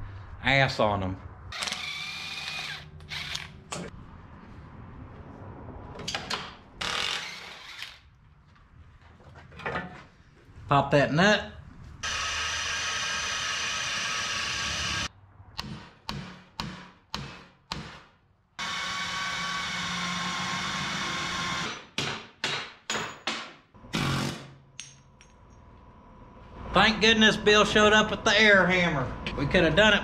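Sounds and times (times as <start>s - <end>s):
pneumatic air hammer: 23.9s - 24.6s.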